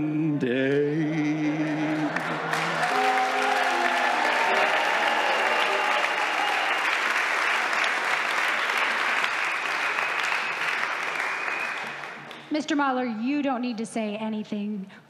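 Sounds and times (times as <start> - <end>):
audience applauding: 1.6 - 12.5.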